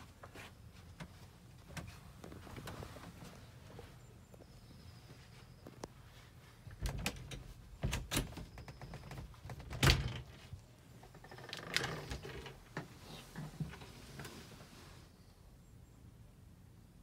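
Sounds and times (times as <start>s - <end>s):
wooden door opening: 6.7s - 12.8s.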